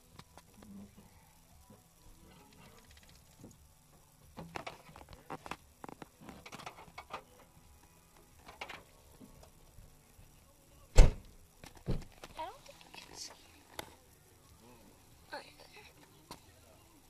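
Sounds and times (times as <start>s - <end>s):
tablet clicks and rustles: 4.4s - 7.3s
loud thump: 11.0s - 11.2s.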